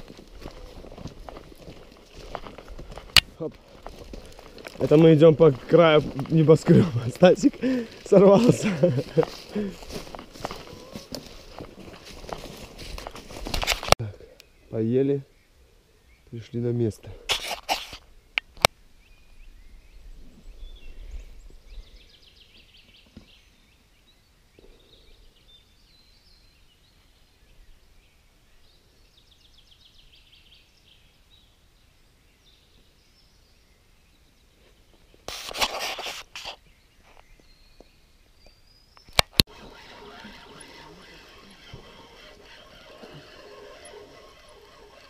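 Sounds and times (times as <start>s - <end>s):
brief rustle: 9.2s - 14.0s, 17.3s - 18.1s, 34.6s - 37.3s.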